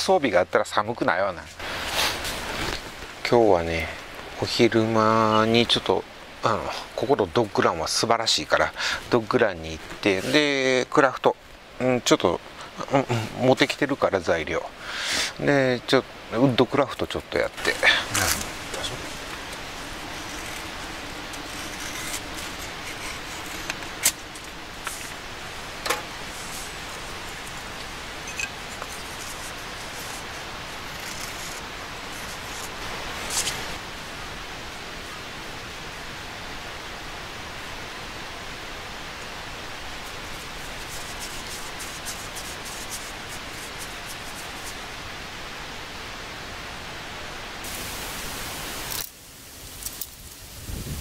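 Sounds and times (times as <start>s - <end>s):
twine fibres rustling: 0.0s - 11.4s, 15.4s - 45.5s
steady background hiss: 0.0s - 51.0s
knife shaving wood: 17.6s - 25.2s, 26.2s - 33.8s, 40.0s - 44.8s.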